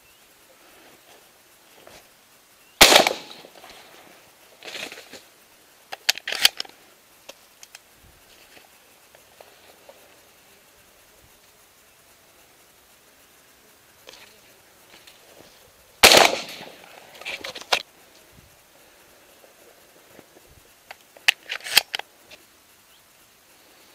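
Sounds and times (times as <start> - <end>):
soft rustle: 0.0 - 23.9
shotgun shot: 2.8 - 3.5, 16.0 - 16.8.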